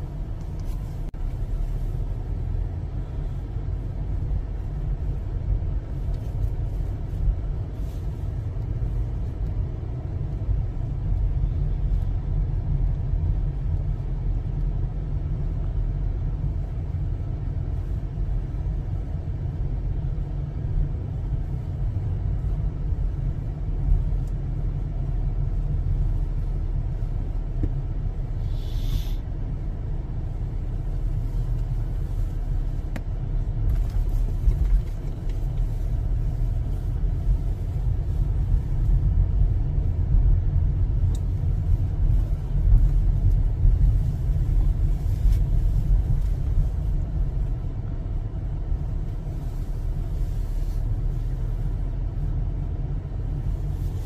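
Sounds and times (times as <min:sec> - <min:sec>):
car driving rumble from inside: 0:00.0 - 0:54.0
brief hiss: 0:28.4 - 0:29.2.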